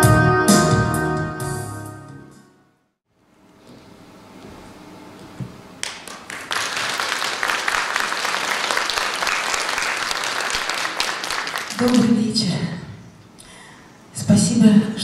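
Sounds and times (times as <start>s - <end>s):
audience applauding: 5.8s - 12.1s.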